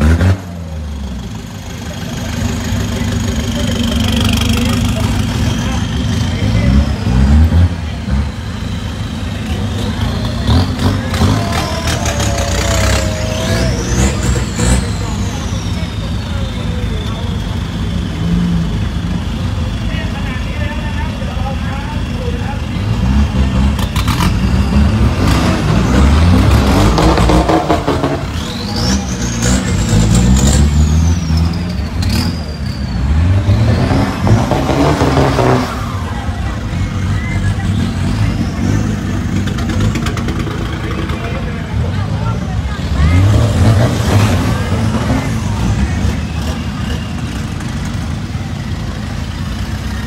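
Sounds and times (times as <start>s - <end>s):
pickup truck engine rumbling: 0.0s - 50.0s.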